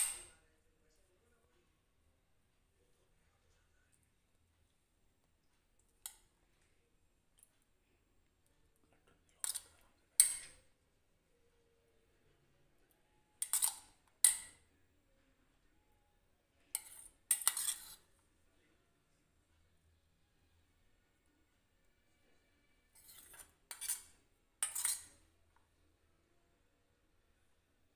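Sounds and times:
metal spoon scraping a bowl: 0:00.0 - 0:00.4, 0:09.4 - 0:10.6, 0:13.4 - 0:14.6, 0:16.7 - 0:18.2, 0:22.8 - 0:25.3.

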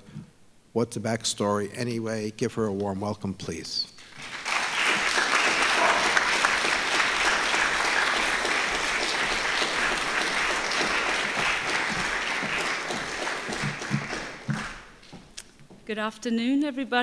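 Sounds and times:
audience applauding: 0:04.1 - 0:15.0.

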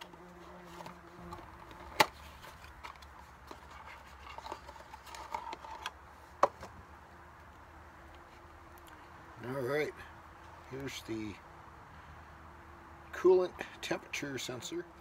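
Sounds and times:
cardboard box rustling: 0:00.0 - 0:05.9.

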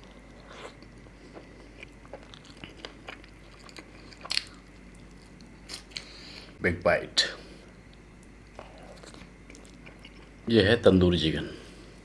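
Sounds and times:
wet chewing and lip sounds: 0:00.0 - 0:06.2, 0:07.8 - 0:10.4.

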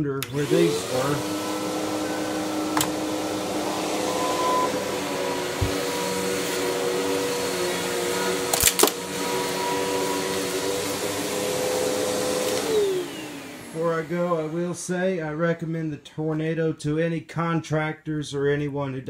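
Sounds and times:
vacuum cleaner running: 0:00.2 - 0:15.0.

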